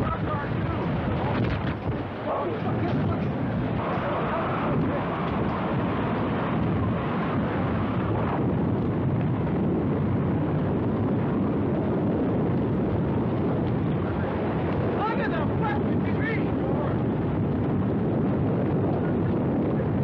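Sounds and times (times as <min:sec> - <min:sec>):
tornado wind rushing: 0:00.0 - 0:20.0
wind buffeting microphone: 0:00.0 - 0:20.0.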